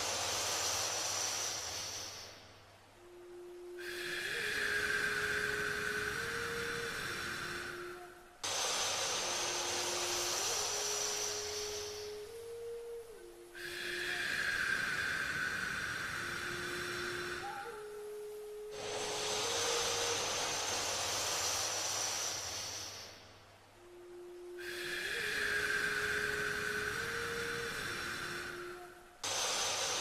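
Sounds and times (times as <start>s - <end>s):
slow breathing through nose: 0.0s - 2.6s, 3.8s - 12.7s, 13.6s - 17.8s, 18.6s - 23.5s, 24.6s - 30.0s
soft sustained tone: 0.0s - 30.0s.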